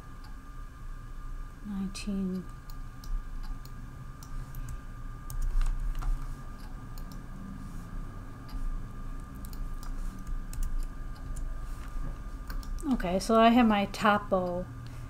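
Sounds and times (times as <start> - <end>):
faint high hum: 0.0 - 15.0
computer keyboard keystrokes: 9.4 - 11.5, 12.5 - 12.9.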